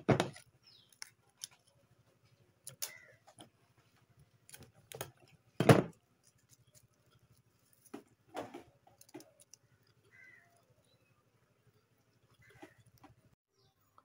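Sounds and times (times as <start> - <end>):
crab shell cracking: 0.3 - 3.5, 8.8 - 10.8.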